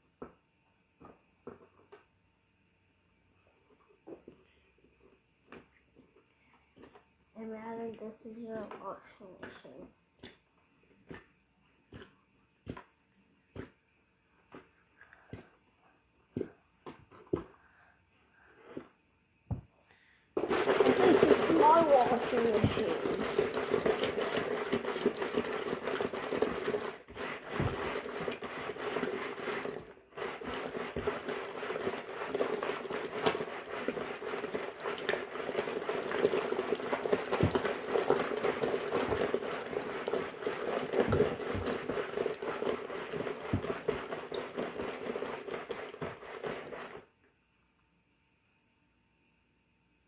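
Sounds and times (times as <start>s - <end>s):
washing machine running: 20.4s - 47.1s.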